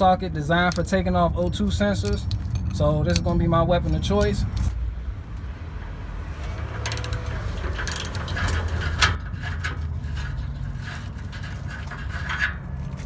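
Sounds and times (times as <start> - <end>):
low rumble: 2.2 - 13.0
ratchet clicking: 6.8 - 9.8.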